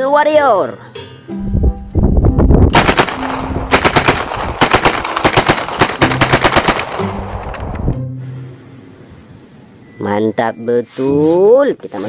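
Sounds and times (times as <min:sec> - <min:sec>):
toy machine gun firing: 0:02.8 - 0:07.0.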